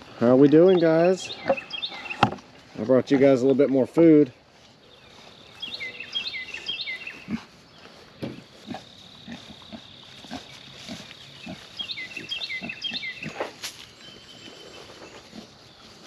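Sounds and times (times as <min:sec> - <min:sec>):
bird chirping: 0:00.0 - 0:16.0
pigs grunting: 0:07.0 - 0:07.6, 0:08.2 - 0:13.6, 0:14.4 - 0:15.6.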